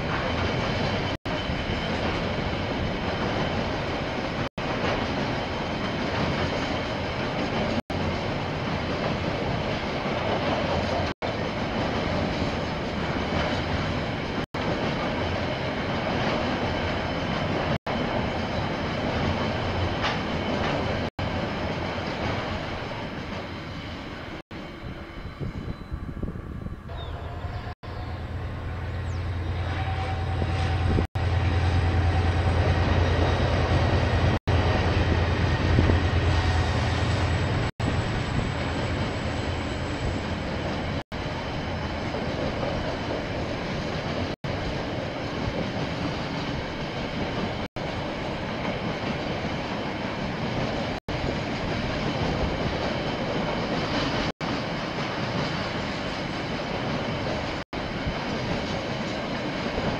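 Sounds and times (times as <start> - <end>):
diesel locomotive engine drone: 16.9 - 44.7.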